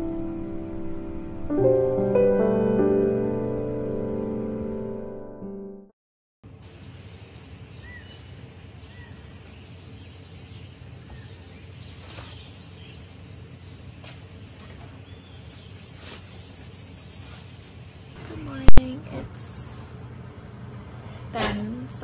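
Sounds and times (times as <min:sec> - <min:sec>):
piano tune: 0:00.0 - 0:05.9
outdoor background noise: 0:06.4 - 0:22.0
birds chirping: 0:06.6 - 0:18.6.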